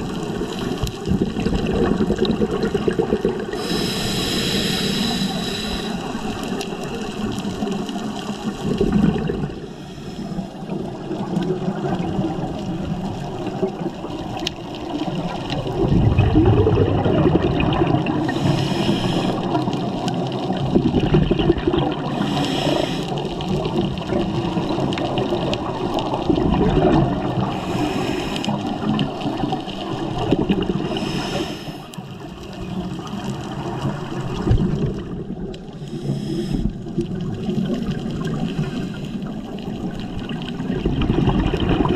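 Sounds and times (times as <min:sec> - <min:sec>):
underwater bubbles gurgling: 0:00.0 - 0:41.9
regulator hiss: 0:03.6 - 0:06.5, 0:18.3 - 0:19.5, 0:22.2 - 0:23.2, 0:27.6 - 0:28.6, 0:30.9 - 0:31.9, 0:35.8 - 0:36.7.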